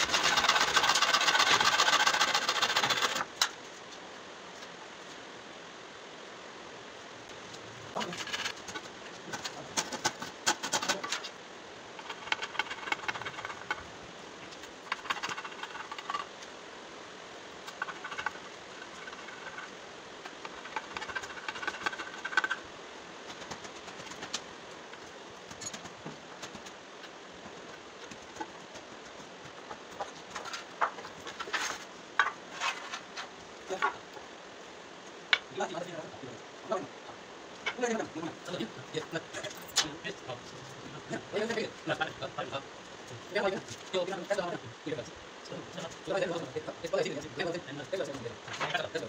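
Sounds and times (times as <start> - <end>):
hand saw rasping through wood: 0.0 - 3.3.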